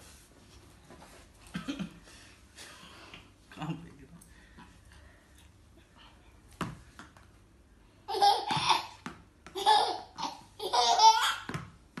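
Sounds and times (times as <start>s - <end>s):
baby laughing: 8.1s - 11.5s.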